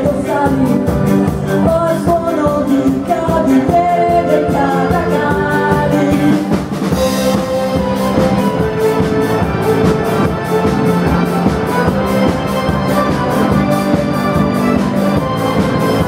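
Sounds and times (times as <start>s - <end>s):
person singing: 0.0s - 6.7s
live ska band playing: 0.0s - 16.0s.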